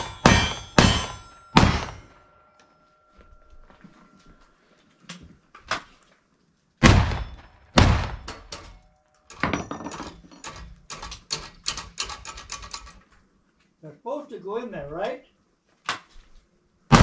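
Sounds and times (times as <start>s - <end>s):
gunshots: 0.0s - 2.1s, 6.8s - 8.3s.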